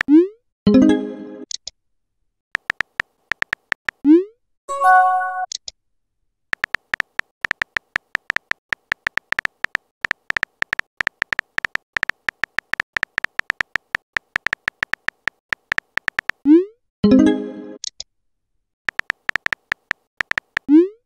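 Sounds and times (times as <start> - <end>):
keyboard typing beeps: 2.6 - 4.0, 6.6 - 16.4, 18.9 - 20.8.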